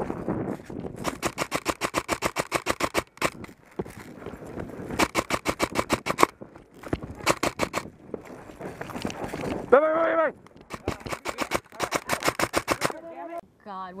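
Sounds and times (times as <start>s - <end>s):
airsoft rifle firing full auto: 1.0s - 3.4s, 5.0s - 6.3s, 10.7s - 13.0s.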